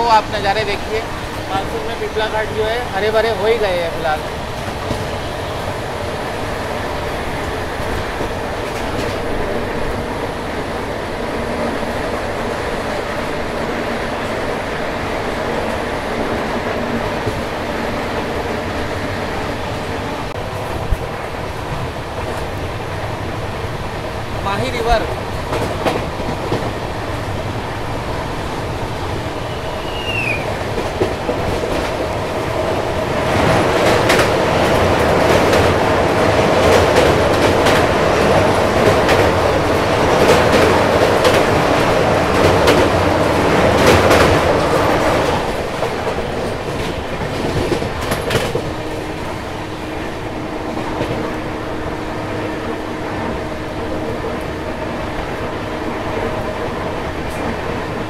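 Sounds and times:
train running noise: 0:00.0 - 0:58.0
wheels clacking over rail joints: 0:29.1 - 0:49.6.

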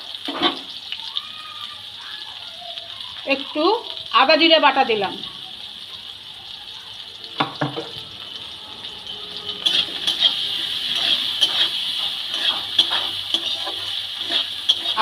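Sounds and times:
vegetables sizzling in oil: 0:00.0 - 0:15.0
metal spatula scraping pan: 0:00.2 - 0:00.7, 0:09.4 - 0:15.0
knock on wok: 0:07.4 - 0:08.0.

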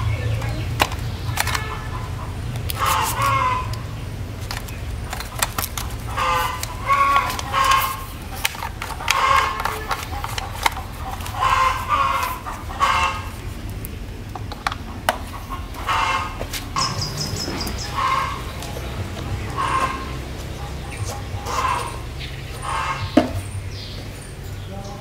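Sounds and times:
chickens clucking: 0:00.0 - 0:25.0
sharp clicks: 0:00.4 - 0:01.9.

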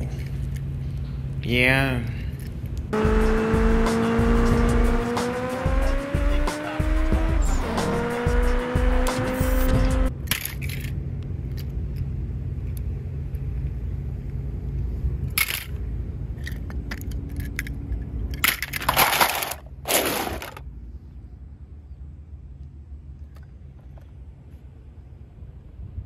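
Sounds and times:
toy cars clattering in plastic basket: 0:15.4 - 0:15.8, 0:16.4 - 0:20.6.

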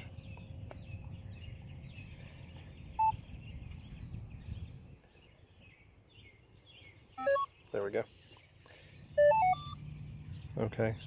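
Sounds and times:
birds chirping faintly: 0:00.0 - 0:11.0
short electronic beep: 0:07.2 - 0:07.5, 0:09.2 - 0:09.8.

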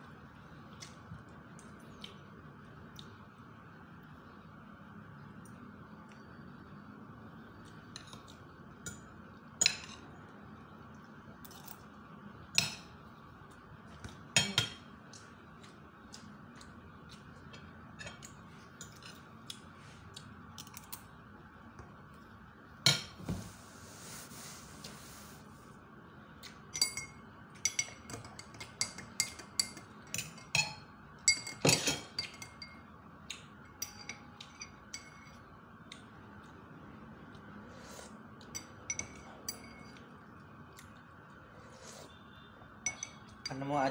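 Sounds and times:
cutlery clinking on ceramic plate: 0:26.8 - 0:32.8.

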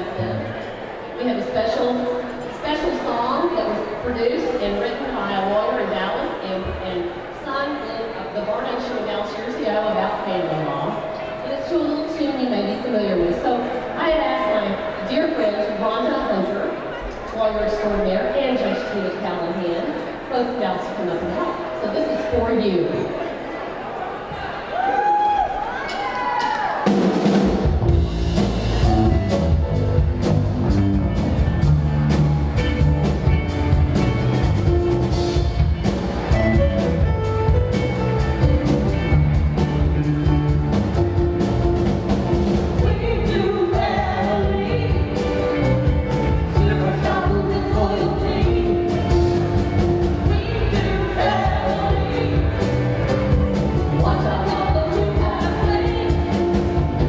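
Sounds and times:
bass: 0:00.0 - 0:16.6, 0:26.6 - 0:57.0
drum kit steady beat: 0:26.4 - 0:57.0
electric guitars: 0:27.2 - 0:57.0
keyboard: 0:27.4 - 0:57.0.

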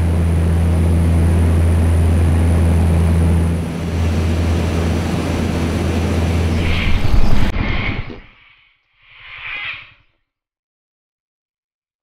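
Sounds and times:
airplane engines droning in cabin: 0:00.0 - 0:07.5.

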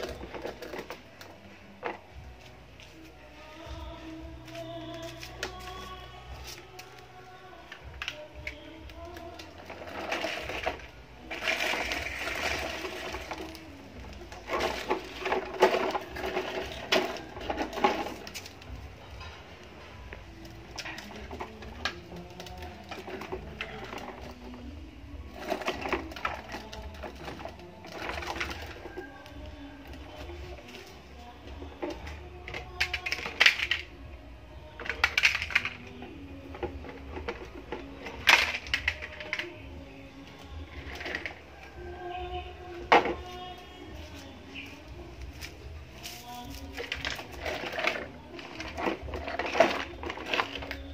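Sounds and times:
plastic toy truck scraping on concrete: 0:09.6 - 0:13.6
toy cars clattering onto stone: 0:32.0 - 0:34.0, 0:34.8 - 0:35.9, 0:36.6 - 0:39.6.

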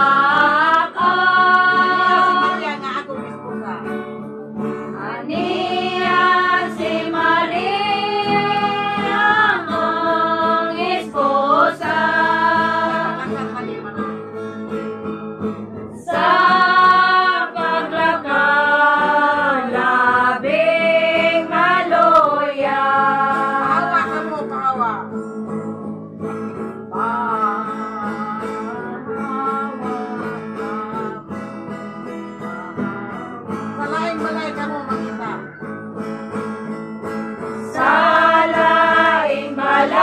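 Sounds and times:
women singing together: 0:00.0 - 0:03.3, 0:04.9 - 0:13.8, 0:16.0 - 0:24.5, 0:26.9 - 0:31.2, 0:37.6 - 0:40.0
guitar: 0:00.0 - 0:40.0.

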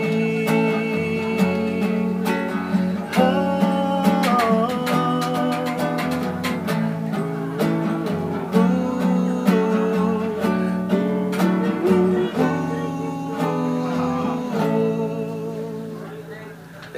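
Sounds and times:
man singing: 0:00.0 - 0:16.4
acoustic guitar: 0:00.0 - 0:16.9.

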